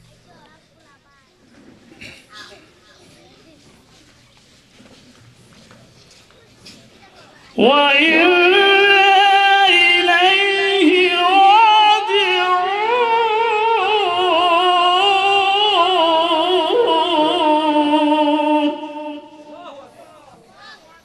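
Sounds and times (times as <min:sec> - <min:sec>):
man chanting into a microphone: 0:07.6 - 0:20.2.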